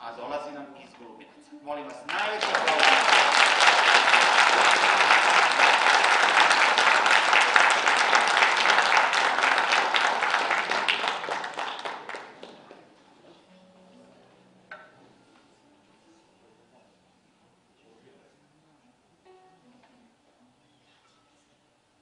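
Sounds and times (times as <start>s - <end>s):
audience applauding: 2.0s - 12.9s.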